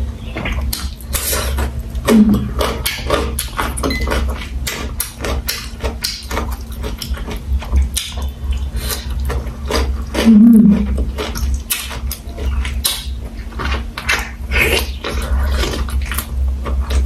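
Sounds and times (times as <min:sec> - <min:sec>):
crunching chewing of vegetables: 0:00.0 - 0:17.0
person humming: 0:02.1 - 0:02.6, 0:10.2 - 0:11.0.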